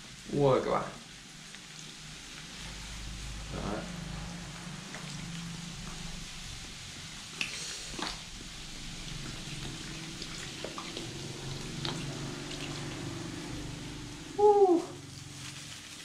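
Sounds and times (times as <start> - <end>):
soda fizzing: 0.0 - 16.0
cola glugging and splashing: 7.4 - 13.2.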